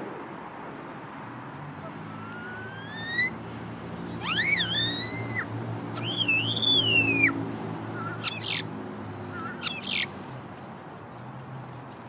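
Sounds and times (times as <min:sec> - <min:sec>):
starling whistling: 0:01.8 - 0:03.4, 0:04.2 - 0:10.3.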